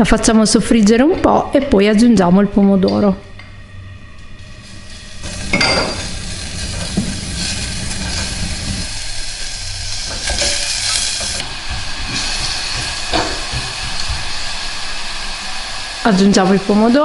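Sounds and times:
onion sizzling in oil: 4.4 - 17.0.

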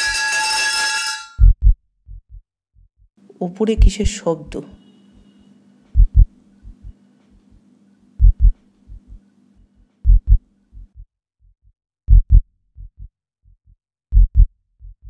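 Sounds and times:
deep heartbeat thuds: 1.4 - 3.1, 3.8 - 4.1, 6.0 - 7.0, 8.2 - 9.2, 10.0 - 11.1, 12.1 - 15.0
low steady hum: 3.2 - 11.0.

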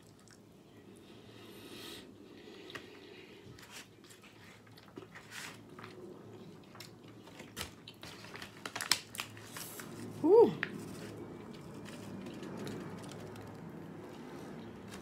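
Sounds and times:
chewing with wet mouth clicks: 0.0 - 0.4, 5.7 - 8.2.

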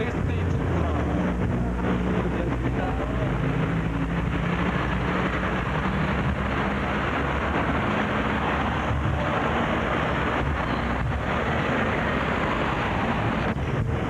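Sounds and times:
low engine hum: 0.0 - 14.0
street traffic rumble: 0.0 - 14.0.

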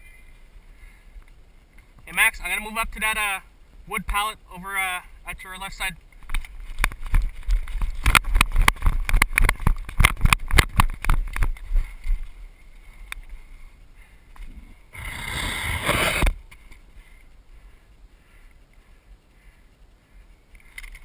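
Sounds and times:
rough scraping rustle: 6.0 - 13.8, 14.4 - 17.3
running footsteps on dirt and twigs: 6.1 - 13.7.

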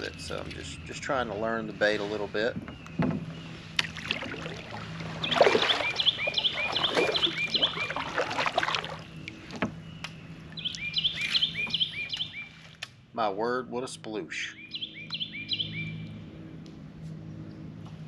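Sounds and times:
kayak paddle swishing through water: 3.5 - 9.6
songbird whistling: 5.2 - 8.1, 9.8 - 12.5, 14.5 - 16.0.

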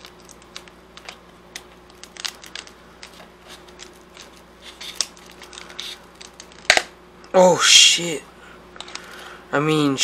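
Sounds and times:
glass cracking and chipping: 0.0 - 2.7.

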